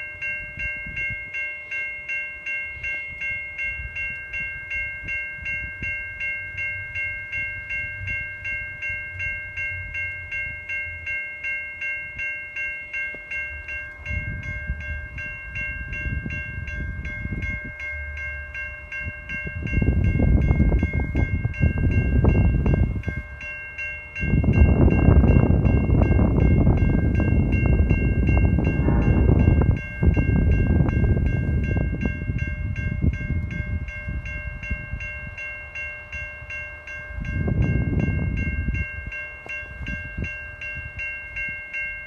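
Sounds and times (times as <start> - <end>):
railroad crossing bell ringing: 0.0 - 42.0
loud low rumble: 24.4 - 33.1.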